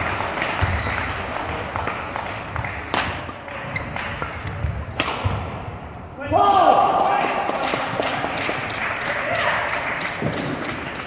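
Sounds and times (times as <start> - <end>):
racket hitting shuttlecock: 1.8 - 5.6.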